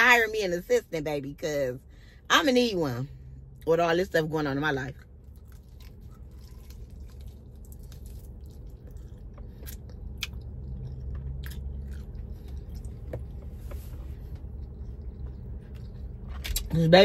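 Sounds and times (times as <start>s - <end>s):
person chewing and biting: 5.2s - 13.4s, 14.3s - 16.7s.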